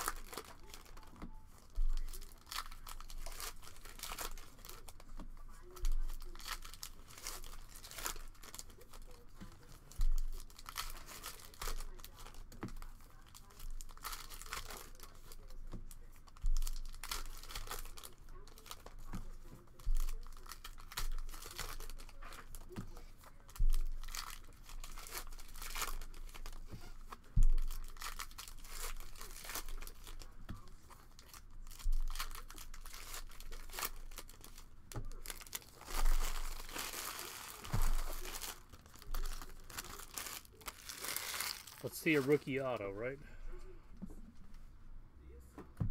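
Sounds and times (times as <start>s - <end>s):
foil wrappers crinkling and tearing: 0.0s - 43.1s
dull thumps: 45.6s - 45.9s.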